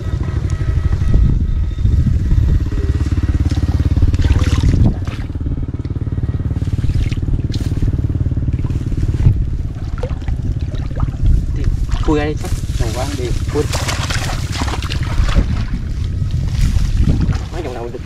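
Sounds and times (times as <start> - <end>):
small engine running: 0.0 - 18.0.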